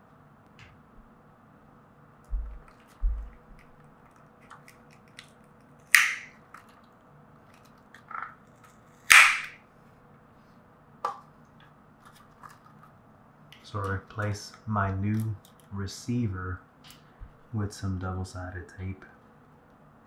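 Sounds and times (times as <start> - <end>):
sharp plastic cracks: 2.5 - 6.9, 7.5 - 9.6.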